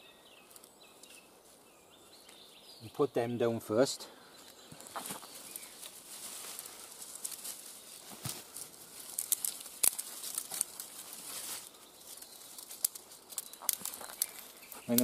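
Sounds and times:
twigs and forest litter rustling: 0.0 - 15.0
small crackles and clicks: 4.5 - 15.0.

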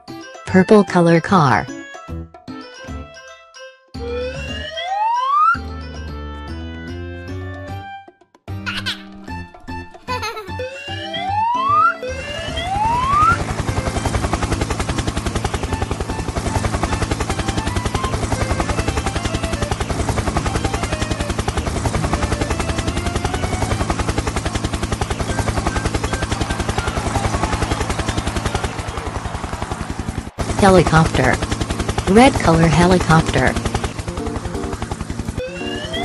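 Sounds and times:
cartoon helicopter rotor chop: 4.0 - 5.9, 10.0 - 36.0
rising whistle-like glide: 10.9 - 13.4, 35.4 - 36.0.

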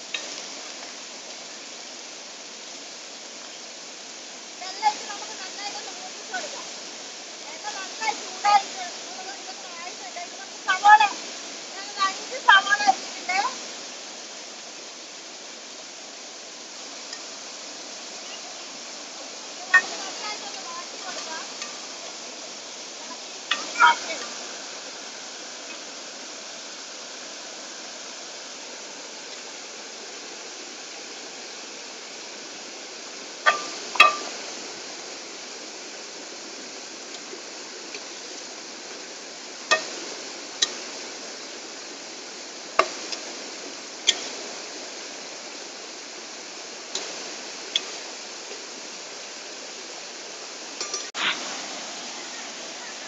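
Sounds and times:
stream and waterfall rushing: 0.0 - 53.0
ladle clinking on metal pot: 33.5 - 34.3.

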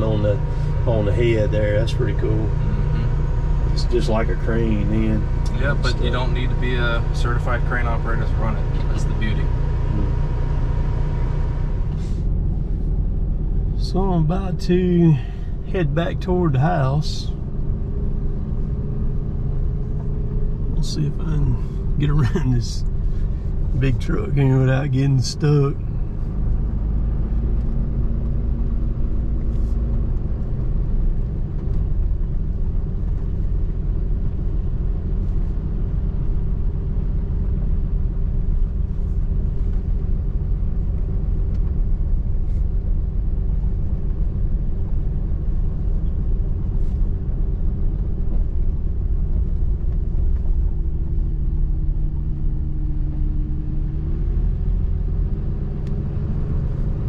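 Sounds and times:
truck engine and tyres rumbling: 0.0 - 57.0.

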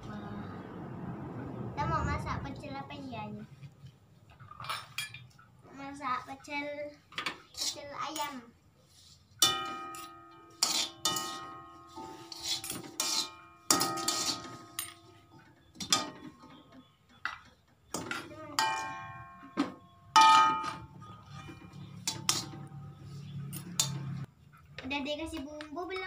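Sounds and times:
metal ladle clanking in a wok: 9.4 - 15.1, 20.2 - 24.2.

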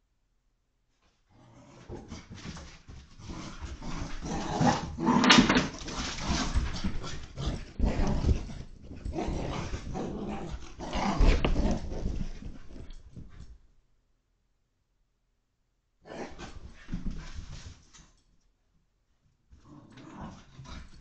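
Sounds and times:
paws thudding on floor: 1.9 - 13.7
puppy growling playfully: 3.2 - 5.4, 6.1 - 12.4.

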